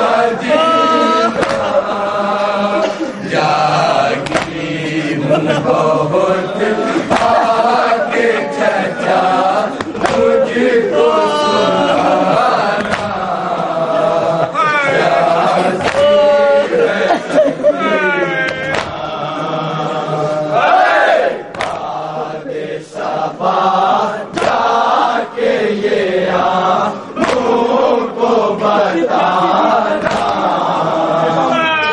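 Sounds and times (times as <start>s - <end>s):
lead reciter on a microphone: 0.0s - 31.9s
men chanting a lament: 0.0s - 31.9s
hands striking chests: 1.4s - 1.7s, 4.2s - 4.6s, 9.8s - 10.3s, 12.8s - 13.2s, 27.2s - 27.5s.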